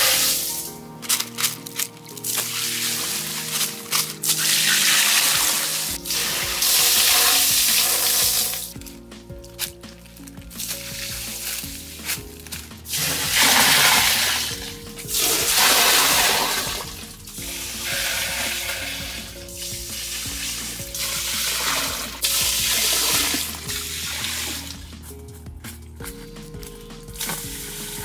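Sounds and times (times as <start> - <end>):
background music: 0.0 - 28.0
water pouring into pool: 2.2 - 8.7, 12.9 - 24.8.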